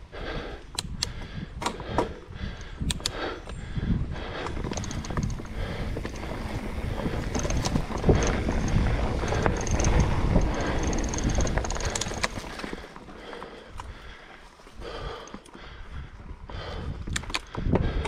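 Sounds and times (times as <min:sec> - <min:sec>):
bike rattling over bumps: 0:01.2 - 0:18.0
bike tyre rumble on dirt: 0:03.2 - 0:18.0.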